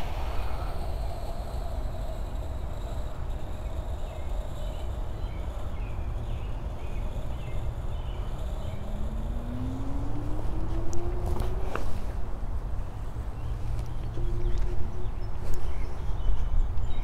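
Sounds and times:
low hum rising in pitch: 0.0s - 3.1s, 7.1s - 12.4s, 13.8s - 15.4s
low outdoor rumble: 0.0s - 16.2s
birds chirping: 2.8s - 11.6s.

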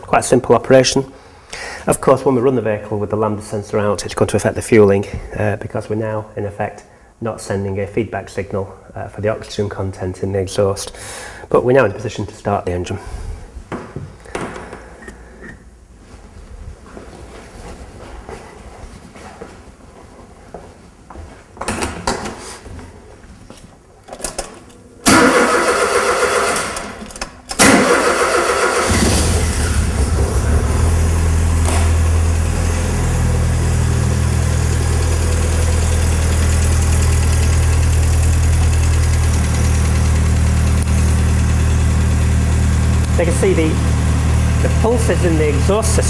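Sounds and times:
car starter cranking: 25.0s - 32.4s
car engine idling: 28.0s - 46.0s.

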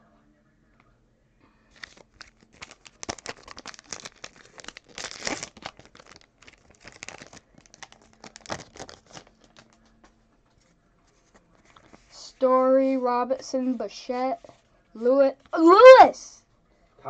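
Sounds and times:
wrapper crinkling and tearing: 1.7s - 9.9s.

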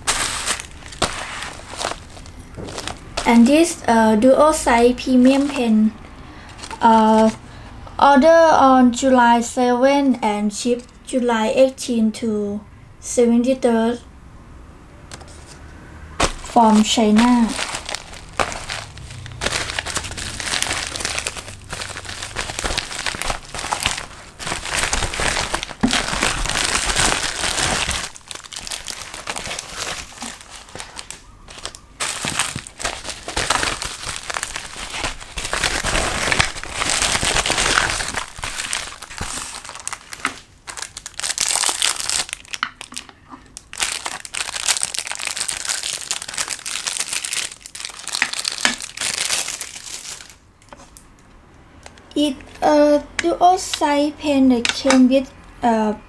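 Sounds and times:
plastic packaging crinkling: 0.0s - 7.4s, 16.2s - 51.0s.

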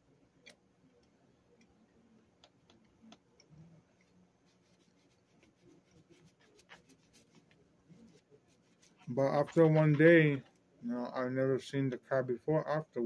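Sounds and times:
faint low hum: 0.0s - 13.0s
faint clicks and ticks: 0.4s - 4.2s.

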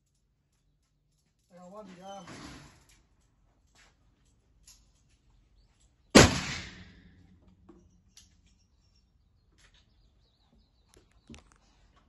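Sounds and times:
pistol shot echo: 6.2s - 7.2s.

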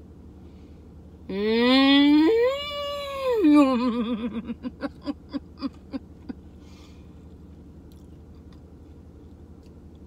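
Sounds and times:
woman humming mm sounds: 1.3s - 4.1s.

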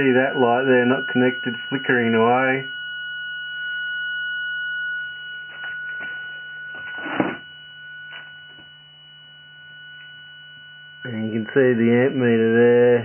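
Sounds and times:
circuit high-pitched whine: 0.0s - 13.0s
low hum: 0.0s - 13.0s
thump: 6.8s - 7.4s.

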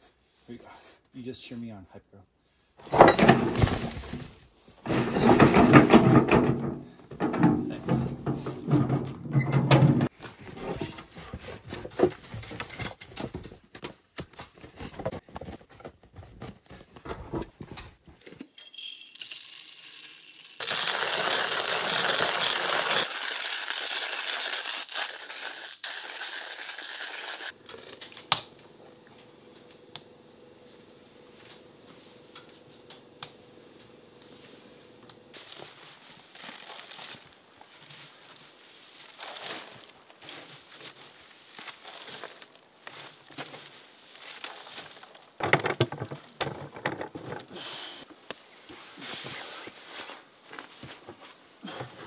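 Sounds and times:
wheelbarrow tipping compost: 2.8s - 12.8s, 35.3s - 47.9s
hand coffee grinder grinding beans: 18.5s - 30.0s, 34.2s - 40.4s.

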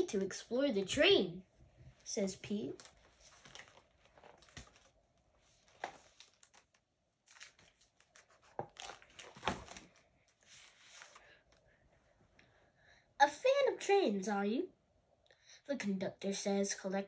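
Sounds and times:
book pages rustling: 1.9s - 11.7s.

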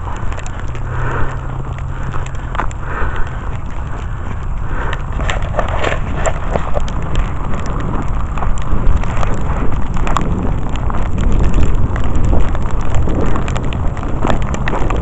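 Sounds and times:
footsteps crunching in snow: 0.0s - 9.7s
wind buffeting microphone: 0.0s - 15.0s.

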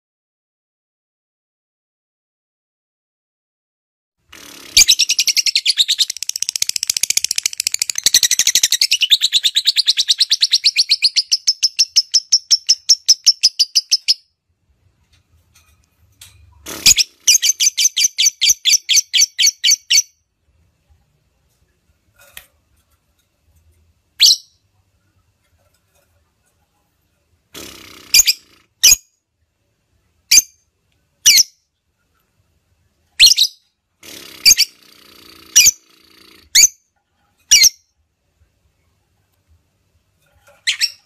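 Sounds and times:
bird rapid high chirps: 4.5s - 14.2s, 16.7s - 20.2s.

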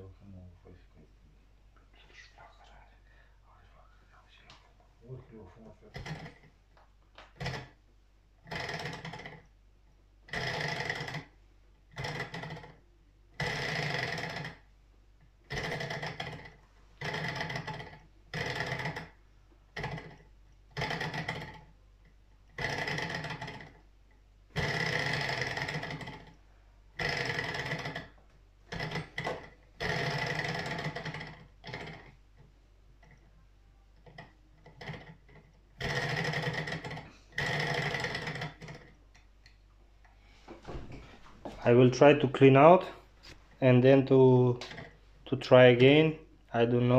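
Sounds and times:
model engine clattering: 5.9s - 6.5s, 8.4s - 9.5s, 10.3s - 11.3s, 12.0s - 12.8s, 13.4s - 14.6s, 15.5s - 19.2s, 19.8s - 21.7s, 22.6s - 23.8s, 24.6s - 26.4s, 27.0s - 32.2s, 34.0s - 39.0s.

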